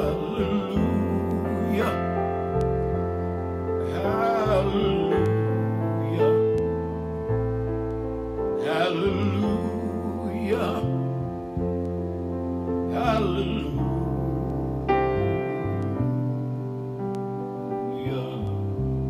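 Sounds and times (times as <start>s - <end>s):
man singing with vibrato: 0.0s - 2.6s, 3.8s - 6.8s, 8.6s - 11.5s, 12.8s - 15.0s, 17.8s - 18.9s
deep bass line: 0.0s - 19.0s
piano chords: 0.0s - 19.0s.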